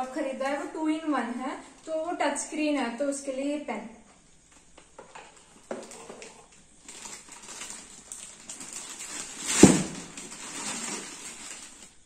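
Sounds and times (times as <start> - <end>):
plastic packaging crinkling: 4.7 - 12.0
loud thump: 9.5 - 10.1.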